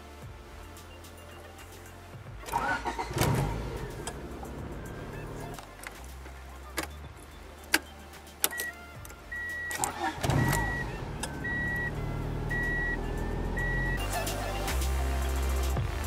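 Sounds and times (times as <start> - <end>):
car engine cranking and idling: 2.2 - 14.9
ignition key clicks: 2.5 - 6.0, 6.7 - 7.0, 7.6 - 13.0
dash warning chime beeping: 6.6 - 14.0.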